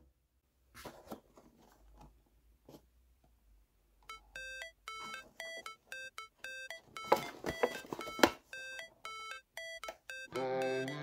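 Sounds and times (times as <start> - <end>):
electronic music with synth beeps: 4.1 - 11.0.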